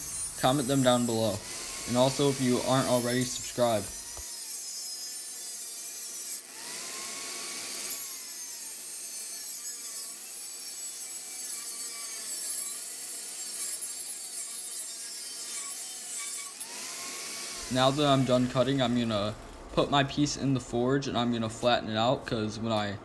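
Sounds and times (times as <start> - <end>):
angle grinder cutting metal: 0.0 - 21.0.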